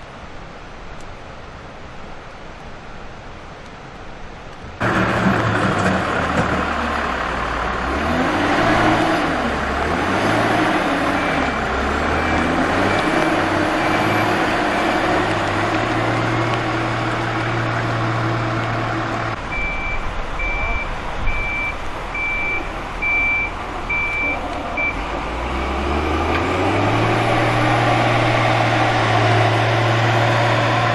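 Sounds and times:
diesel engine revving: 4.8s - 30.9s
reversing alarm beeping: 11.1s - 15.1s, 19.5s - 27.6s.

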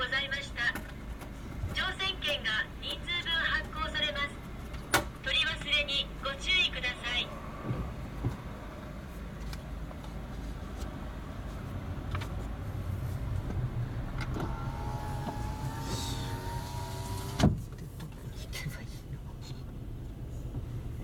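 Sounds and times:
car engine and road rumble: 0.0s - 21.0s.

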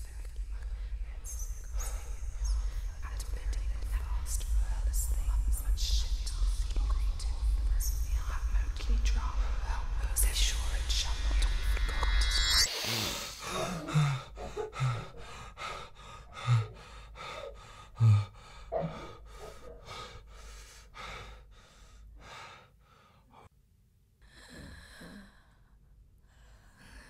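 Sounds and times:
person breathing hard and fast: 12.6s - 23.5s
voiced gasps: 12.7s - 23.5s.

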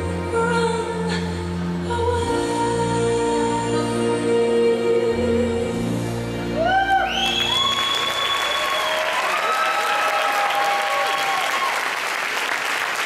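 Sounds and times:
cheering whoops: 6.6s - 12.2s
audience applause: 7.0s - 13.0s.

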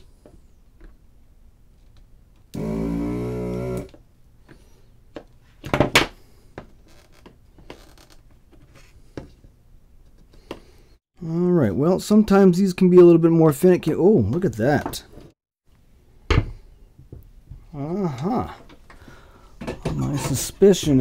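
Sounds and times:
desoldering pump buzzing: 2.5s - 4.0s.

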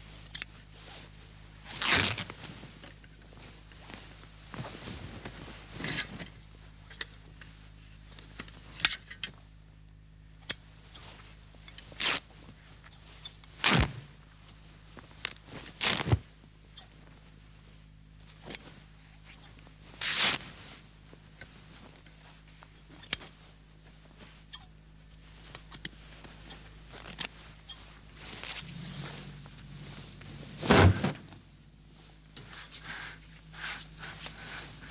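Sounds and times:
faint low hum: 0.0s - 34.9s
cloth ripping: 1.7s - 2.3s, 12.0s - 12.2s, 13.6s - 13.9s, 15.3s - 16.2s, 20.0s - 20.5s, 28.3s - 29.2s
cloth rustling: 14.7s - 16.3s, 25.1s - 34.9s.

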